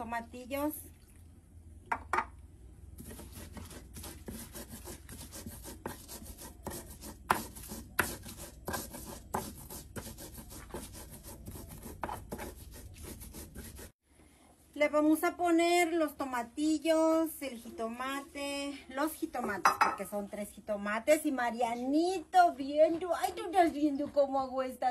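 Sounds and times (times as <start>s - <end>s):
pestle grinding in mortar: 3.0s - 13.9s.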